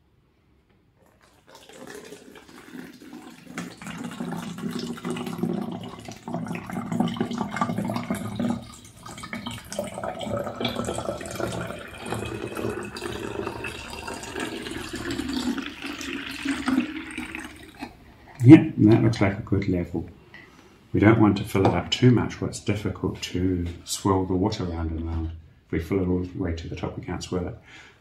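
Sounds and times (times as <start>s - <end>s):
water pouring into plastic bottle: 1.0s - 18.1s.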